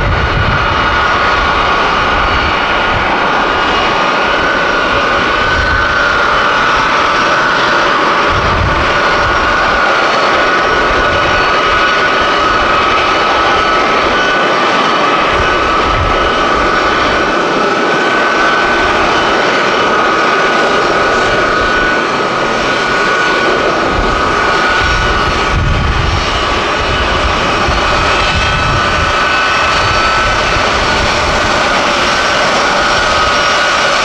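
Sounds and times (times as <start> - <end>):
jet engines roaring: 0.0 - 34.0.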